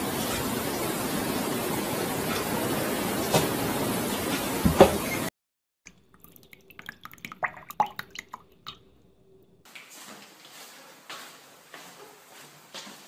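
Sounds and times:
water drips and plinks: 5.9 - 9.7.

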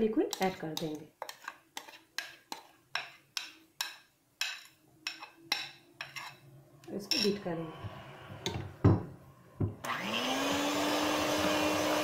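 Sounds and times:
metal spoon scraping metal pan: 0.0 - 8.7.

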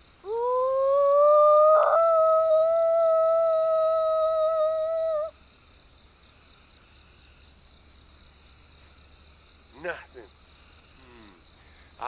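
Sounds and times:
person howling call: 0.3 - 5.3.

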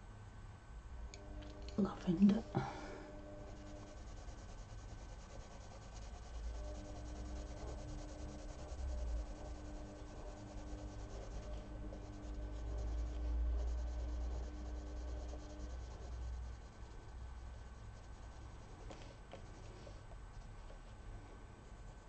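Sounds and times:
coloured pencil shading on paper: 1.6 - 22.0.

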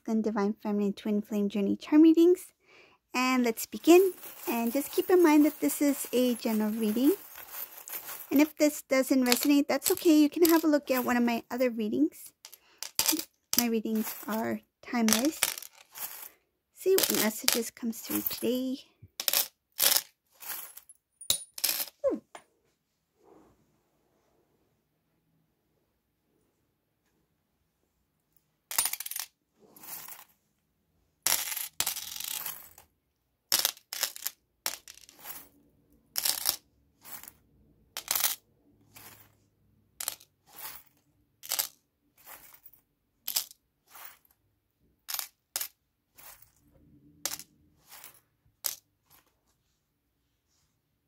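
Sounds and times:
metal charms clinking: 3.8 - 8.6, 12.8 - 16.2.

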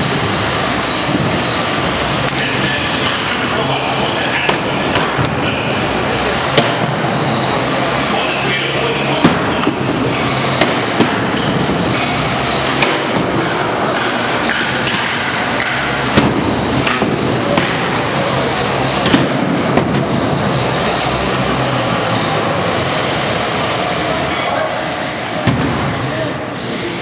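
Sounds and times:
steady background noise: 0.0 - 27.0
robots striking sharp knocks: 9.2 - 18.0, 19.0 - 20.2, 25.4 - 26.0.

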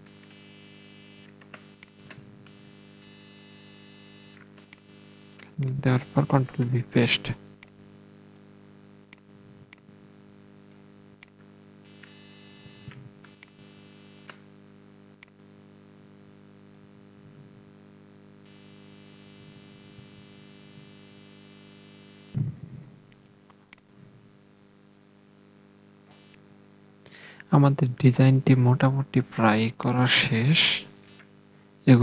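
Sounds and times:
low electrical hum: 0.0 - 32.0
low thump: 22.4 - 23.0
computer mouse clicks: 23.1 - 23.9.

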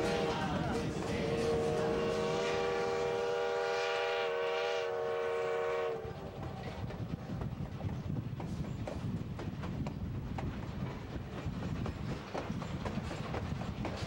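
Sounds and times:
steam locomotive whistle: 0.0 - 6.6
train wheels clattering over rail joints: 6.4 - 14.0.

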